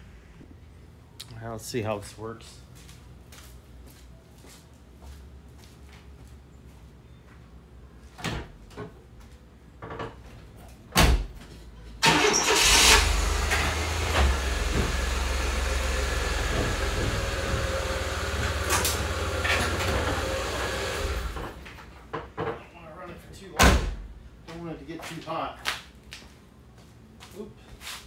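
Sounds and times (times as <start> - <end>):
door thumping shut: 23.6 - 24.1.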